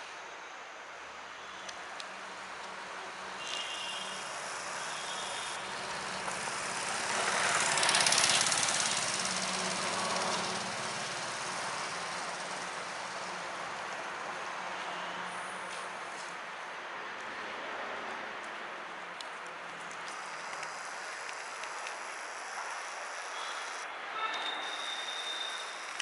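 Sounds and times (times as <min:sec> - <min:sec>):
motor vehicle passing by: 0:02.2 - 0:14.7.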